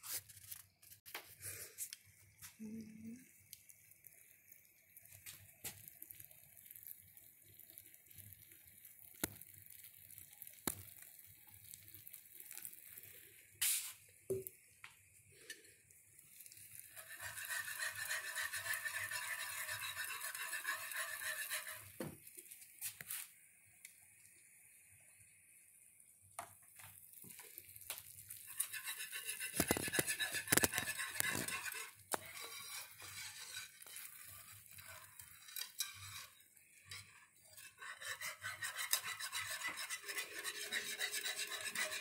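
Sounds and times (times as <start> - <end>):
whisk scraping a skillet: 5.2 - 13.9, 16.3 - 23.2, 27.1 - 42.0.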